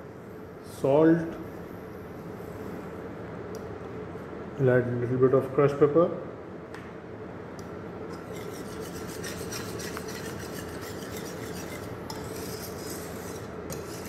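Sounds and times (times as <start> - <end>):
whisk scraping pan: 8.2 - 14.0.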